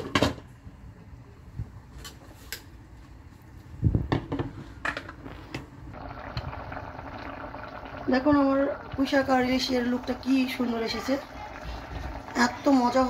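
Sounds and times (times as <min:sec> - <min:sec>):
curry simmering hiss: 0:06.0 - 0:13.0.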